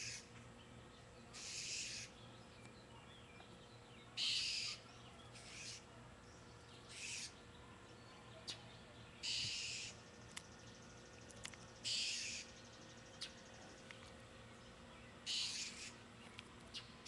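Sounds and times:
blue jay harsh jeer calls: 0.0 - 0.3, 1.3 - 2.2, 4.2 - 4.8, 5.4 - 5.9, 6.9 - 7.4, 9.2 - 10.0, 11.8 - 12.5, 15.2 - 16.0.

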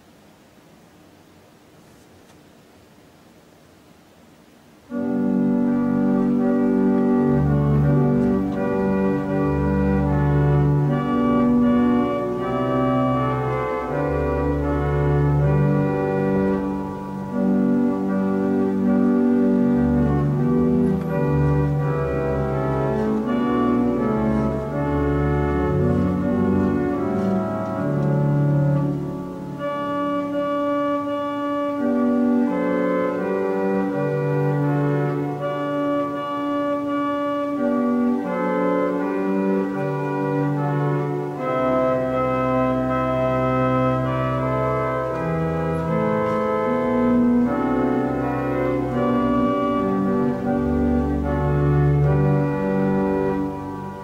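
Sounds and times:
organ playing slow chords: 4.8 - 54.0.

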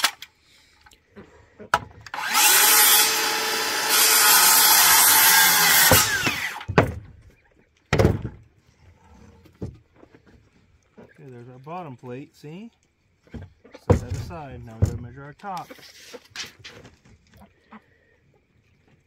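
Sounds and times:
circular saw cutting wood: 2.1 - 6.7.

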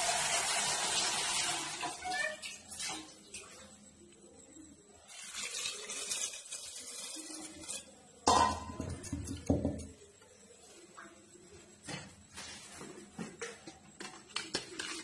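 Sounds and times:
water pouring into metal pot: 0.0 - 3.6, 5.0 - 8.1
metal pots clunking: 8.2 - 10.0.

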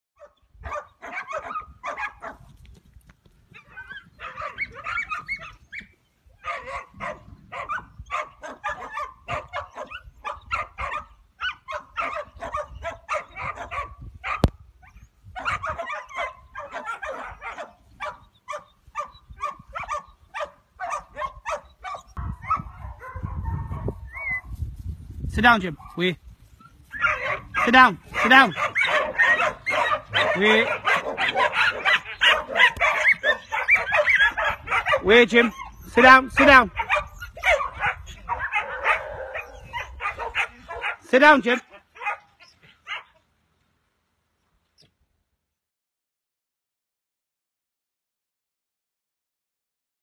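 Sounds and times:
dog barking rapidly: 0.2 - 2.4, 3.6 - 14.5, 15.4 - 24.5, 26.9 - 43.1.

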